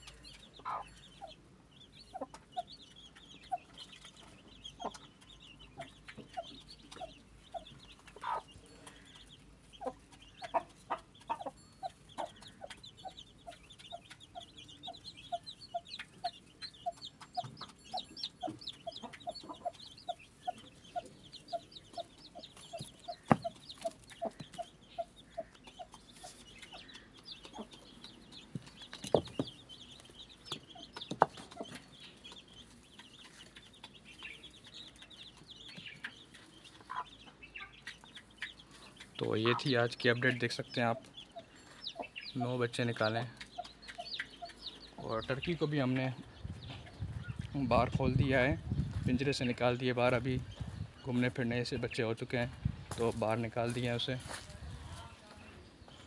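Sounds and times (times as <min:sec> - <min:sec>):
hen clucking softly: 0:00.0 - 0:01.4, 0:05.8 - 0:27.9, 0:36.0 - 0:42.5
chicks peeping: 0:00.0 - 0:56.0.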